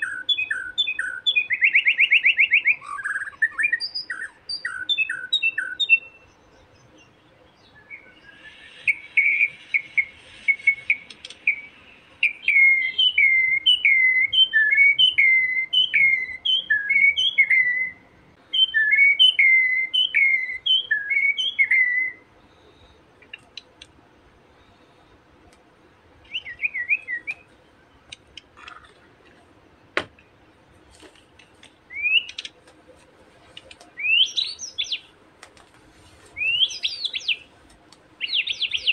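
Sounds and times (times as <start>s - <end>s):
bird whistling calls: 0.0s - 6.2s, 7.6s - 22.2s, 26.2s - 27.5s, 31.9s - 32.5s, 34.0s - 35.1s, 36.4s - 37.5s, 38.2s - 38.9s
sharp click: 11.0s - 11.4s.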